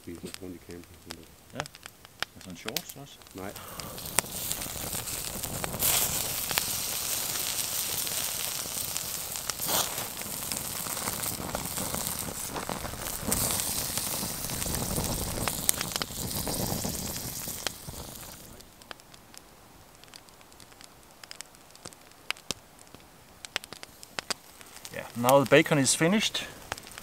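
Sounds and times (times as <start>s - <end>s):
bacon sizzling on grill: 0.0s - 27.0s
campfire crackling: 0.0s - 27.0s.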